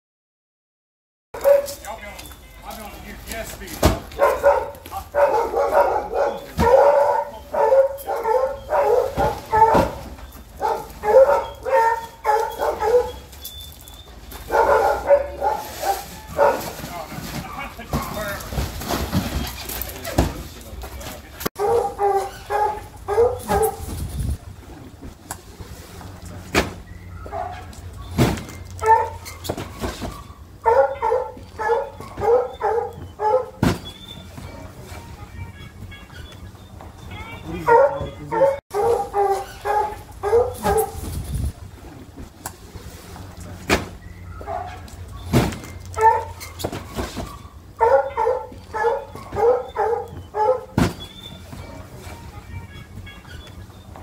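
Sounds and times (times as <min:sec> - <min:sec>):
dog barking: 0:01.4 - 0:01.8, 0:04.1 - 0:13.3, 0:14.4 - 0:16.8, 0:21.6 - 0:23.9, 0:27.2 - 0:28.2, 0:28.8 - 0:29.3, 0:30.6 - 0:33.6, 0:37.6 - 0:41.1, 0:44.3 - 0:44.9, 0:46.0 - 0:46.5, 0:47.3 - 0:50.8
cardboard boxes thumping down: 0:03.7 - 0:04.2, 0:16.3 - 0:20.4, 0:28.1 - 0:28.6, 0:45.2 - 0:45.8, 0:50.7 - 0:52.1.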